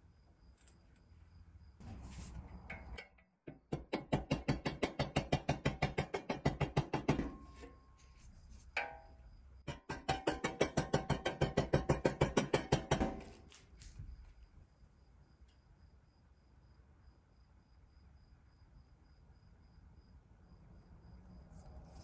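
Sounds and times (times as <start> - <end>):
rapid tapping on steel: 2.6 - 7.8, 8.7 - 13.4.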